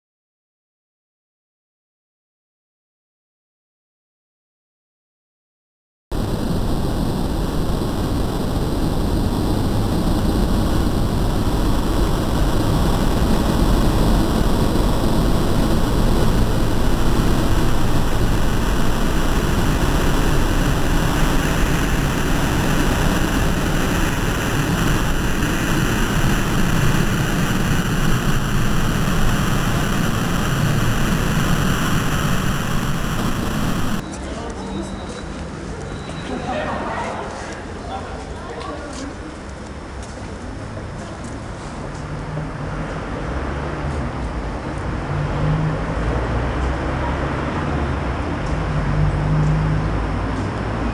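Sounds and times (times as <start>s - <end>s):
loud low rumbling drone: 6.1s - 34.0s.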